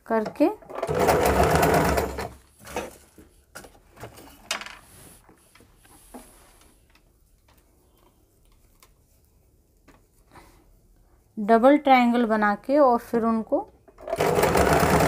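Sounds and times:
faint clicks and fabric rustles: 0:02.6 - 0:11.2.

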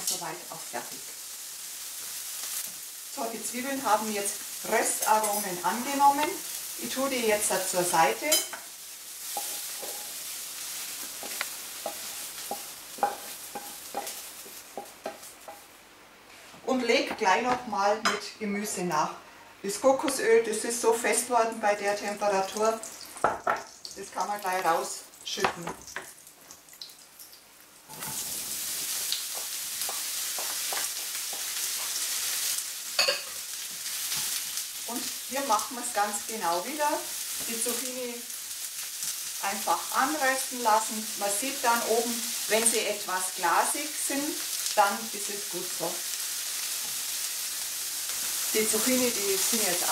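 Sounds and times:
hot oil sizzling: 0:00.0 - 0:17.9, 0:19.8 - 0:49.9
utensil scraping a frying pan: 0:09.2 - 0:15.6.

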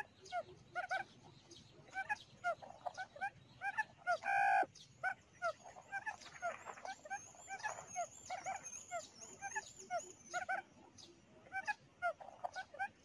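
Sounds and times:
quail calls from a speaker: 0:00.0 - 0:01.1, 0:01.9 - 0:10.6.

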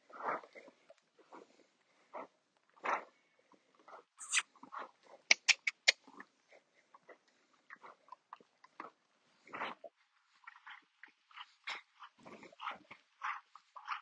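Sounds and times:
animal snuffling: 0:04.2 - 0:06.2
sharp clicks: 0:05.3 - 0:06.0.

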